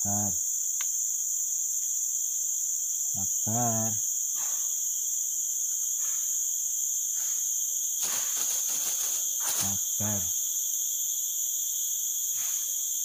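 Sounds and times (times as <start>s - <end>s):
insects buzzing: 0.0s - 13.0s
soft rustles: 8.0s - 10.0s.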